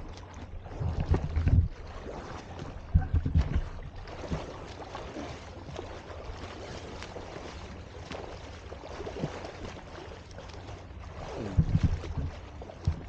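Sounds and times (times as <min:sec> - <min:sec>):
wind rumbling on microphone: 0:00.0 - 0:04.6, 0:11.2 - 0:13.0
water splashing from swimmer: 0:00.0 - 0:13.0.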